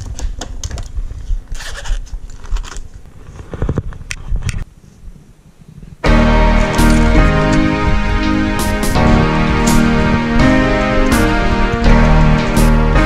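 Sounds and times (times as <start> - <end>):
music: 6.0 - 13.0.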